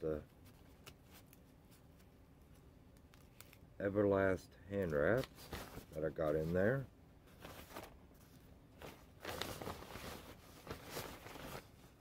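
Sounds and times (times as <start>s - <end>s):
nylon backpack rustling: 8.8s - 12.0s.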